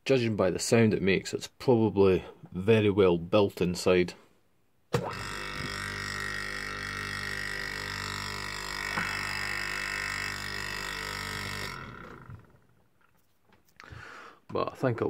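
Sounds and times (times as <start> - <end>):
refrigeration compressor humming: 5.0 - 12.8.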